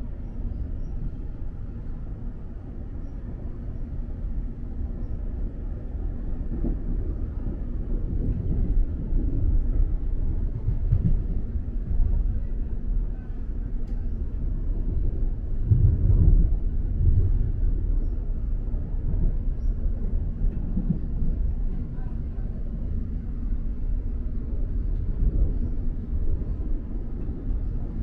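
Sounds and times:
electric train rumbling on track: 0.0s - 28.0s.

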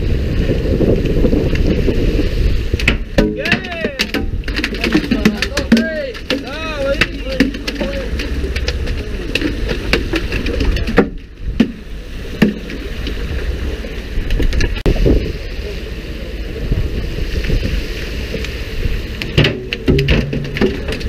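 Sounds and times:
water noise: 0.0s - 21.0s
wind: 0.0s - 21.0s
sharp knocks: 19.3s - 21.0s.

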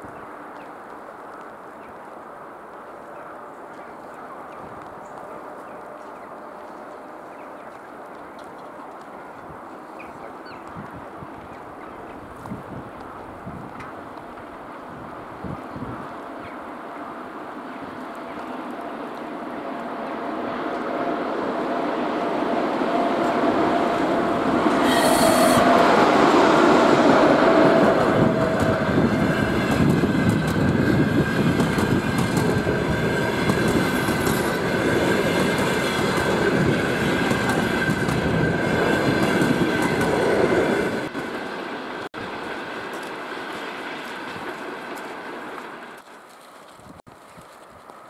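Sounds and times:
electric locomotive whine: 0.0s - 46.1s
high-pitched wheel squeal: 24.7s - 25.9s
shrill burst: 24.7s - 26.2s
train wheel clatter: 26.9s - 46.1s.

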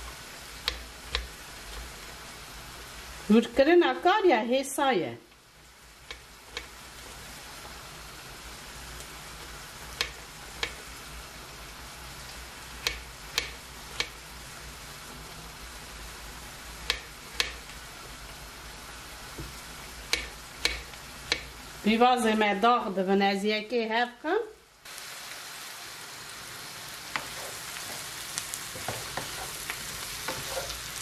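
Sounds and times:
onions sizzling in a pan: 0.0s - 31.0s
knife tapping on cutting board: 0.6s - 1.3s, 12.8s - 14.2s, 16.9s - 17.6s, 20.1s - 21.5s.

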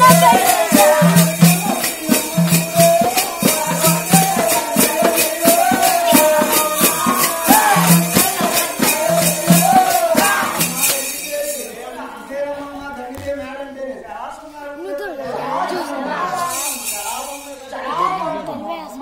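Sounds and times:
frame drum beat: 0.0s - 11.5s
shaken rattle or jingles: 0.0s - 12.0s, 16.3s - 17.9s
person singing folk melody: 0.0s - 19.0s.

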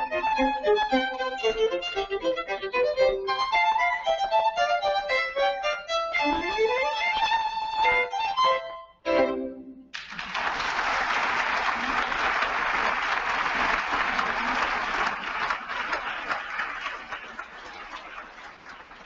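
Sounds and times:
audience applause: 9.9s - 19.0s.

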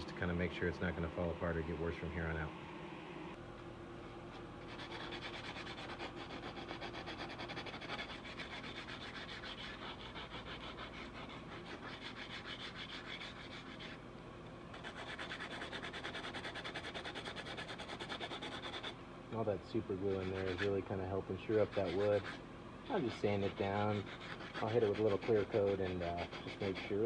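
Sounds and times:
sandpaper rubbing on wood: 4.7s - 14.0s, 14.7s - 19.0s, 19.8s - 27.0s.

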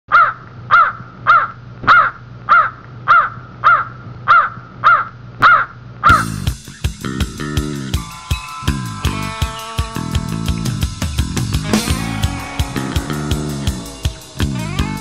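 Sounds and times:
crow-like animal calls: 0.1s - 6.4s
rock band playing: 6.1s - 15.0s.

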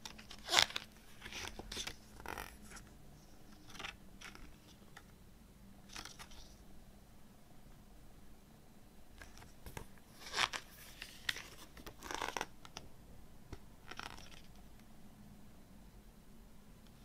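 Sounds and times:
booklet pages rustling: 0.0s - 5.2s, 5.8s - 6.6s, 9.2s - 12.8s, 13.5s - 14.7s.

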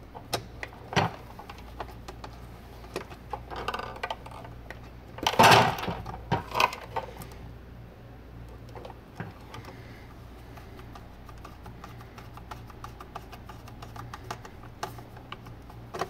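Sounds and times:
plastic clatter: 5.2s - 7.2s.

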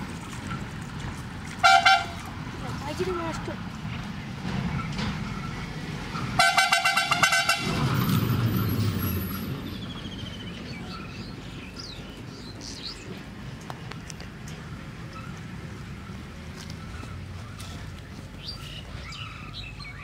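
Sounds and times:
vehicle horn buzzing: 1.6s - 2.2s, 6.4s - 7.8s.

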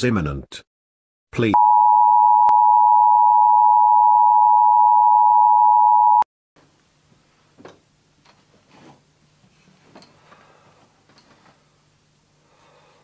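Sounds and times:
faint knocks and rustles: 7.1s - 11.7s.

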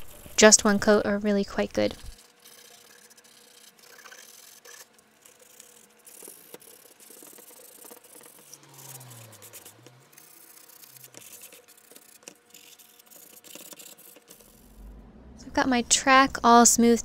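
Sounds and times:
sandpaper rubbing strokes: 1.9s - 14.8s.

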